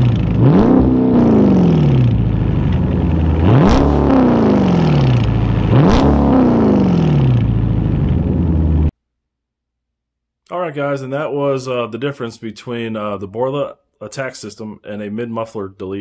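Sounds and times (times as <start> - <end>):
car engine revving: 0.0 - 8.9
engine rumbling idle: 0.0 - 8.9.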